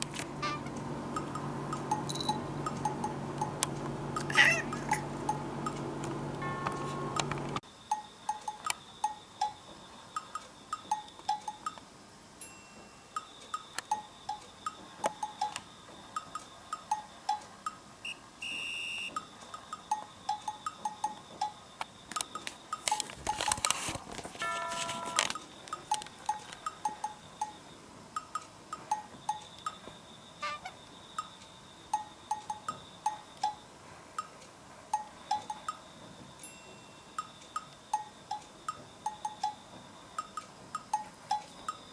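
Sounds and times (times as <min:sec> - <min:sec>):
plinking bell-like music: 0:01.2 - 0:03.5, 0:06.4 - 0:07.3, 0:12.4 - 0:13.3, 0:24.4 - 0:25.3, 0:36.4 - 0:37.2.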